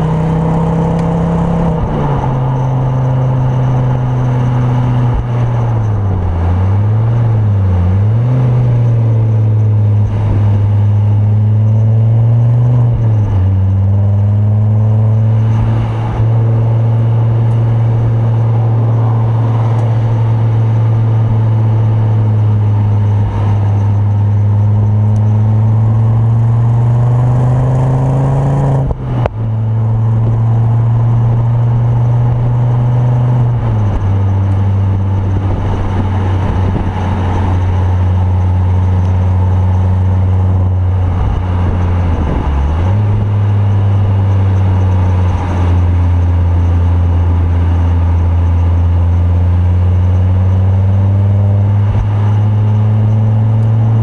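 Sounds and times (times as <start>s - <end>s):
car engine from inside cabin: 0.0s - 54.0s.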